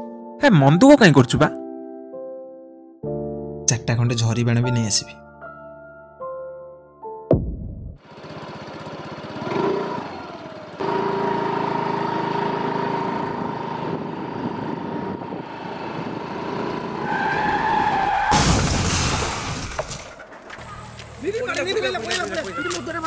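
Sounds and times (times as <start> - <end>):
motor scooter engine whine: 8.0 - 18.1
loud crash impact: 18.3 - 20.2.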